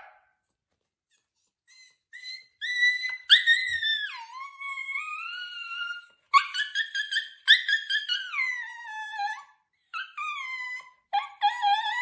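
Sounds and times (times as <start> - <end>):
dog howling and yipping: 2.2 - 9.4, 10.0 - 12.0.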